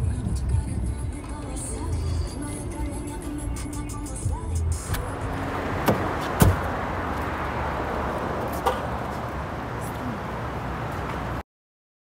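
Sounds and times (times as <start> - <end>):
low traffic hum: 0.0 - 11.4
sharp knock: 5.8 - 6.7.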